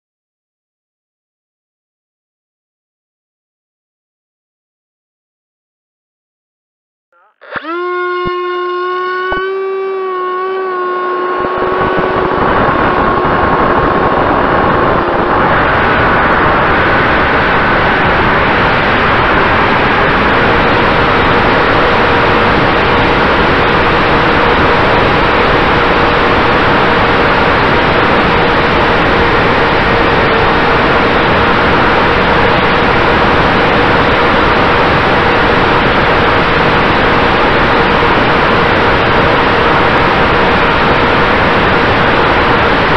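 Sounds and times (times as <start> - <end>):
electric motor whine: 7.2 - 42.9
wind and propeller rush: 10.2 - 42.9.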